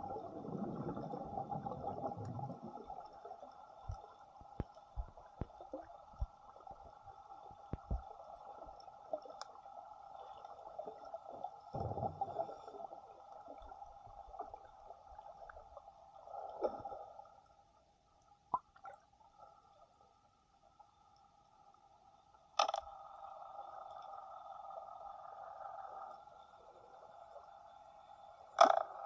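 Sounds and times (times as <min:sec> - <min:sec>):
water gurgling and bubbling: 0:00.0 - 0:04.0, 0:11.7 - 0:13.0.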